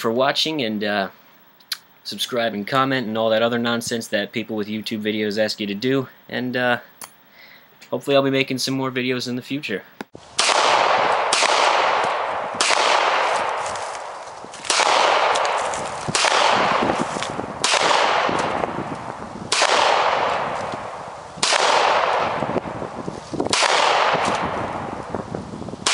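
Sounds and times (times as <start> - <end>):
gunshots with echo: 10.4 - 13.8, 14.6 - 18.9, 19.5 - 22.9, 23.5 - 25.0.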